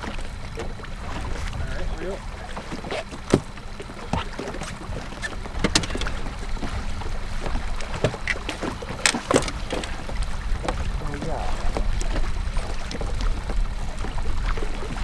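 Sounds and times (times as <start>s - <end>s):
wind on microphone: 0.0s - 8.8s, 9.4s - 15.0s
boat engine rumble: 0.0s - 15.0s
knocks and clicks of gear: 2.7s - 6.8s, 7.4s - 10.8s.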